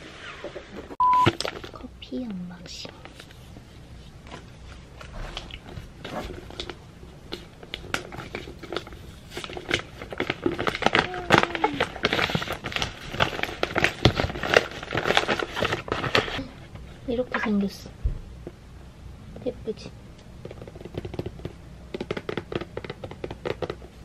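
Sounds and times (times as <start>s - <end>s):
wrapping paper crinkling and tearing: 6.1s - 16.5s.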